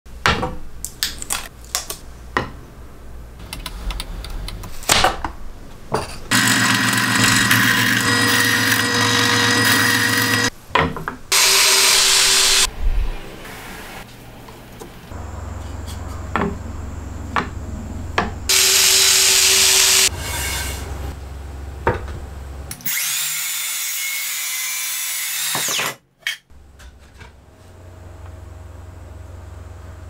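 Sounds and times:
power tool running: 6.3 - 10.5, 11.3 - 12.7, 18.5 - 20.6, 22.8 - 25.9
drill driving screw into plywood: 11.3 - 12.7, 18.5 - 20.1, 25.0 - 26.0.

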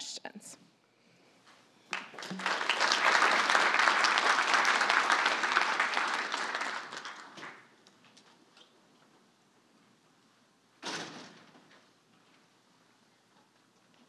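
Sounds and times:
audience applauding: 1.9 - 7.8.

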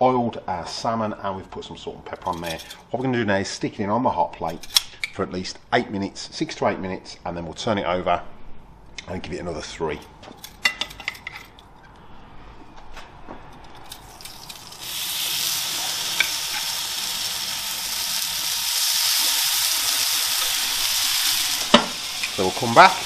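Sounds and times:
fish sizzling on hot plate: 14.0 - 23.0.

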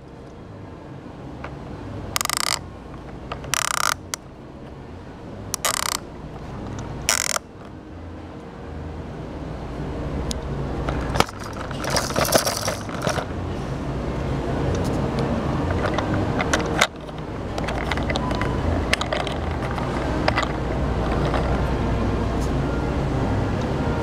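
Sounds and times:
plastic beads rattling: 2.2 - 2.6, 3.4 - 4.1, 5.6 - 6.0, 7.1 - 7.4, 11.1 - 13.3
plastic toy slider rattling: 2.2 - 2.6, 3.3 - 4.2, 5.6 - 6.0, 7.1 - 7.4, 11.0 - 13.3, 15.8 - 21.6.

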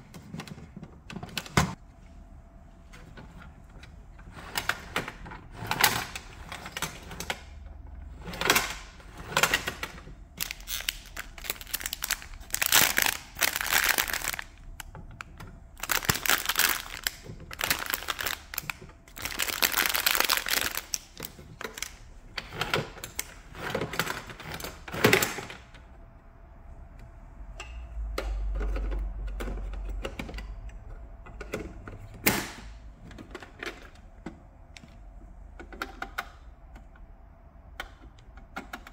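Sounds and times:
machine being moved rumble: 3.0 - 25.5
plastic wrapping crinkling: 10.4 - 14.9, 15.8 - 22.0.

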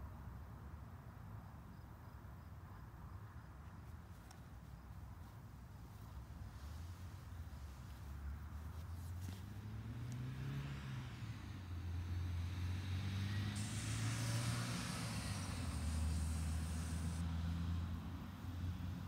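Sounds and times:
car engine rumble: 5.1 - 19.0
high steady hiss: 11.0 - 19.0.

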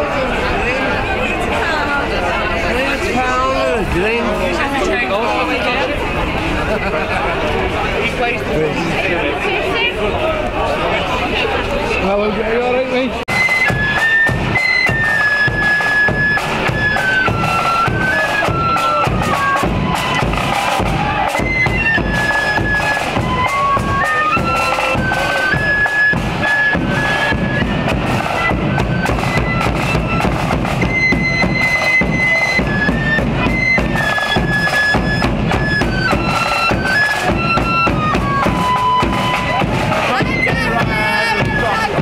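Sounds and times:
bagpipes playing melody: 13.3 - 42.0
drums beating: 13.3 - 42.0.

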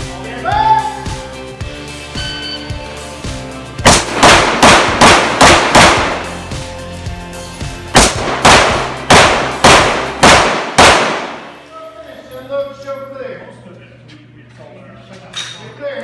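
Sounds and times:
rapid pistol shots: 3.8 - 6.4, 8.0 - 11.6.

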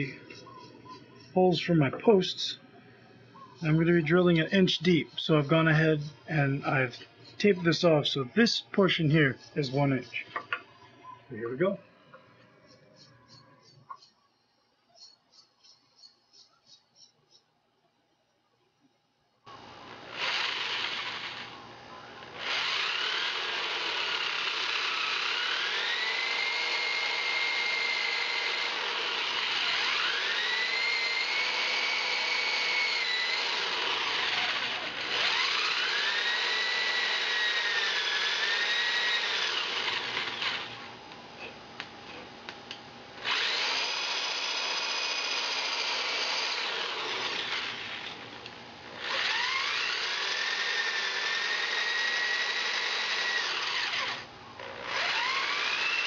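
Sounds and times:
electric drill boring into wood: 19.5 - 21.6, 22.2 - 40.9, 43.2 - 56.0.

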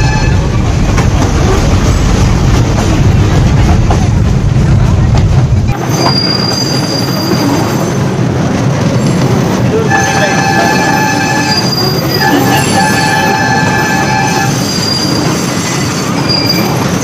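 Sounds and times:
train wheels rumbling on rail: 0.0 - 17.0
wheels squealing on curve: 10.0 - 17.0.

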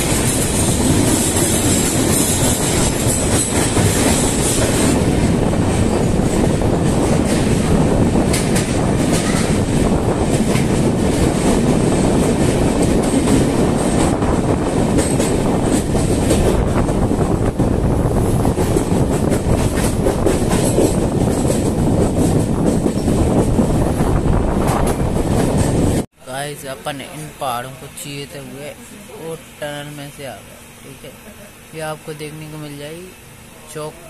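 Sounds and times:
clickety-clack over rail joints: 0.0 - 17.6, 18.2 - 24.0, 24.6 - 26.0
train wheels rumbling on rails: 0.0 - 26.1.

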